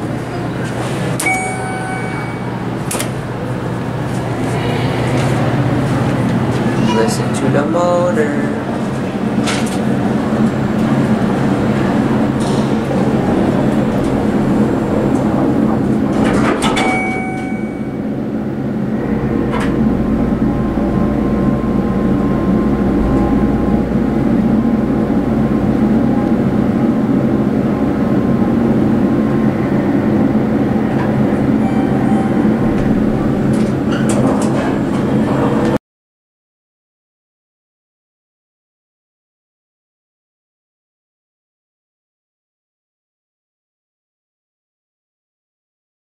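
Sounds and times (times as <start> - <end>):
deep rumble of elevator travel: 0.0 - 35.8
elevator doors sliding: 0.0 - 35.8
elevator fan and machinery hum: 0.0 - 35.8
short electronic tone: 1.2 - 2.8, 16.8 - 18.2, 31.6 - 33.4.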